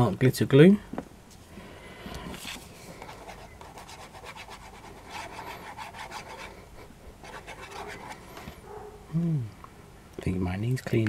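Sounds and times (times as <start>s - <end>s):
metal tip scratching on card: 3.1s - 6.5s, 7.3s - 8.3s.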